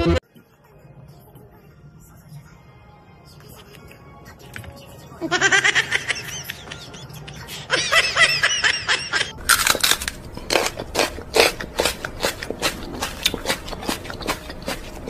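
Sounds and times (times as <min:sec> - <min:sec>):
person giggling: 0:05.2 - 0:09.3.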